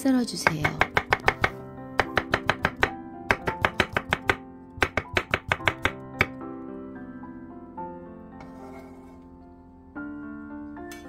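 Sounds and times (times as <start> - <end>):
knife striking cutting board: 0.4 - 6.4.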